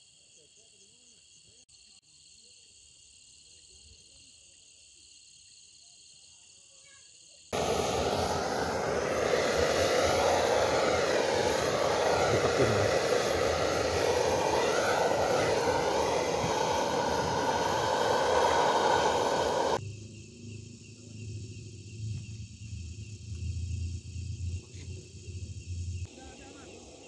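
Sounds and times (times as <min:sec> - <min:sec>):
crickets chirping: 0:00.0 - 0:27.0
gas torch hissing: 0:07.6 - 0:19.8.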